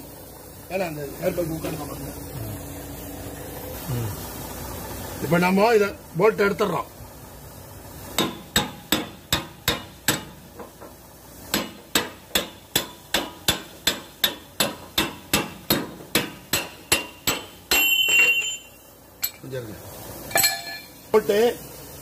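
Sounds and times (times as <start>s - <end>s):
hammer striking steel bar: 8.2s - 10.9s, 11.5s - 19.4s, 20.3s - 21.0s
metallic scraping of bolt: 17.8s - 19.4s.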